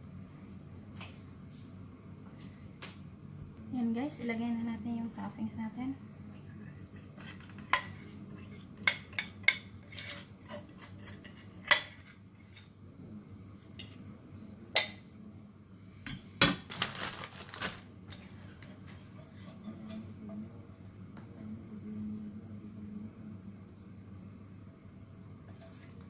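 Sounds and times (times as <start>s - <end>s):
spoon scraping: 6.9s - 12.7s.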